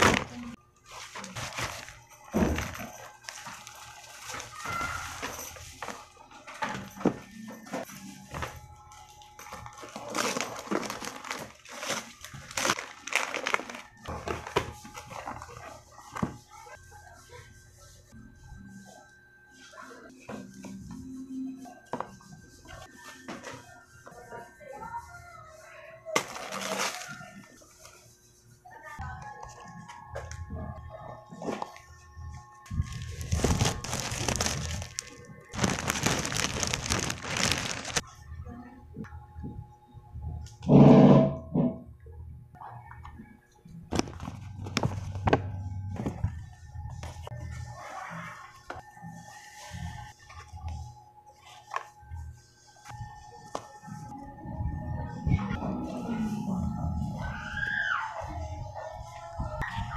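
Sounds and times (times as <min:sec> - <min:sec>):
wrapping paper tearing and crinkling: 0:03.0 - 0:05.9, 0:09.5 - 0:15.7, 0:26.2 - 0:27.5, 0:32.7 - 0:38.0.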